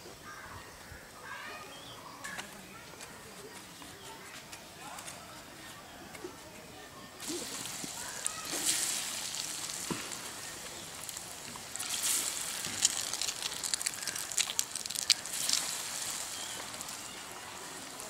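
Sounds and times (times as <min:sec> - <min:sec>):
oil crackling and popping: 0:07.2 - 0:17.3
food deep-frying in oil: 0:07.2 - 0:18.0.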